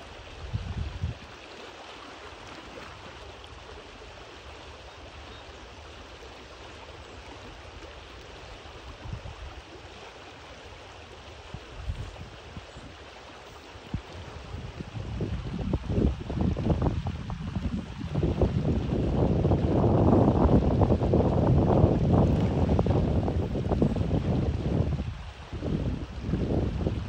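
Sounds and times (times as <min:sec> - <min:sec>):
stream water flowing: 0:00.0 - 0:27.0
wind bumps on microphone: 0:00.4 - 0:01.2, 0:13.9 - 0:27.0.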